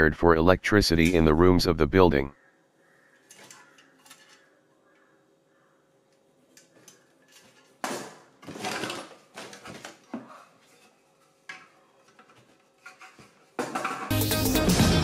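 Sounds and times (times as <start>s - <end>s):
music: 14.1s - 15.0s.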